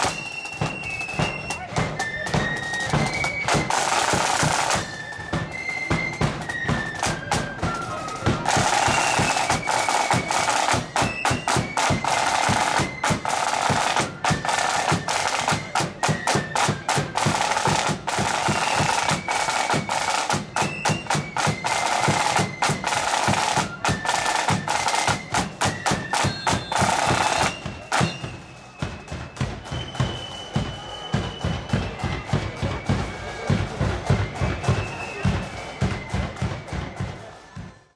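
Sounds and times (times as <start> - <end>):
high wind instrument melody: 0.0 - 37.9
marching side drums: 0.0 - 37.9.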